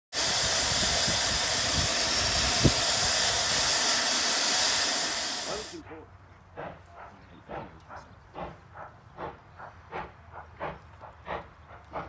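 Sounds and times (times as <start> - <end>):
steam hissing from locomotive: 0.1 - 5.9, 9.2 - 12.0.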